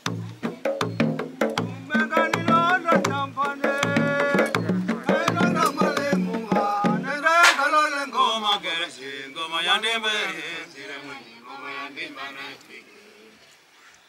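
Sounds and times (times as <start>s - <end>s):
wooden hand drums beating: 0.0s - 7.7s
voices singing a chant: 0.0s - 13.4s.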